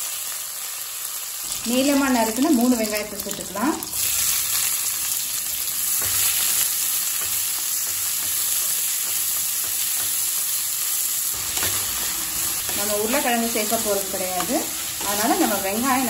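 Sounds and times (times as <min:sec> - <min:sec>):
onions sizzling in hot oil: 0:00.0 - 0:16.0
spatula scraping a pan: 0:11.4 - 0:16.0.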